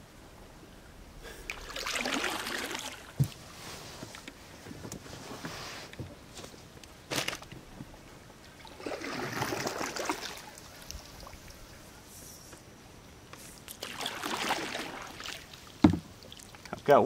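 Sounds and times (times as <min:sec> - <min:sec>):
water dripping: 0:01.4 - 0:03.4
paddle splashing through water: 0:01.5 - 0:04.2, 0:08.4 - 0:11.6, 0:13.7 - 0:16.7.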